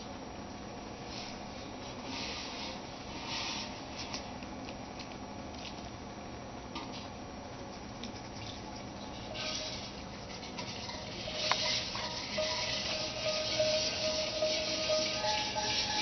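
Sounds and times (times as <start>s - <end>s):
steady musical tone: 11.0s - 16.0s.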